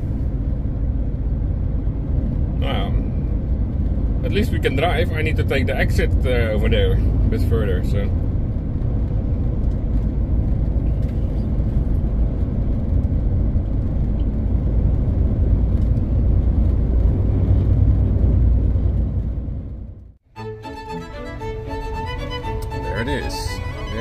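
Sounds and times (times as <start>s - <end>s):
lorry engine and road rumble: 0.0s - 24.0s
music: 20.3s - 24.0s.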